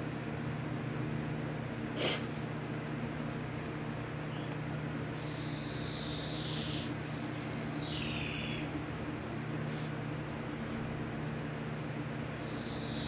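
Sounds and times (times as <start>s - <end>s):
low room hum: 0.0s - 13.0s
pencil scratching on paper: 3.1s - 5.5s.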